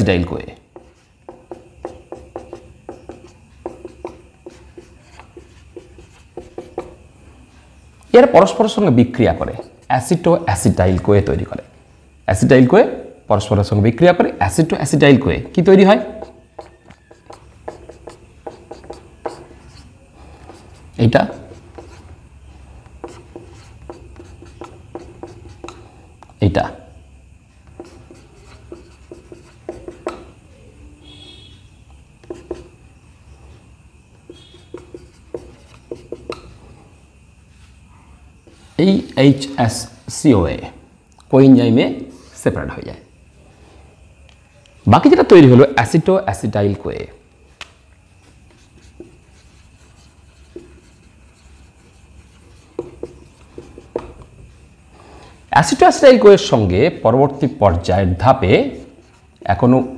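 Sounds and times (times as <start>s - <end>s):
marker writing on a whiteboard: 0.0s - 11.6s, 14.4s - 26.9s, 27.5s - 31.5s, 32.2s - 36.9s, 38.4s - 39.6s, 47.6s - 56.5s, 57.7s - 59.9s.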